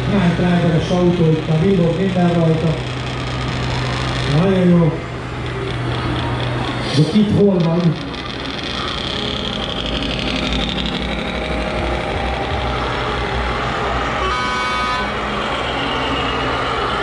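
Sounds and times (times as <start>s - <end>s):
simulated truck engine rumble: 0.0s - 17.0s
truck horn toot: 14.2s - 16.5s.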